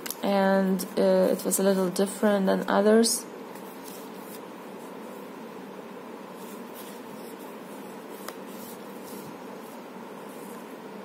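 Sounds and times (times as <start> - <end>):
background hiss: 0.0 - 11.0.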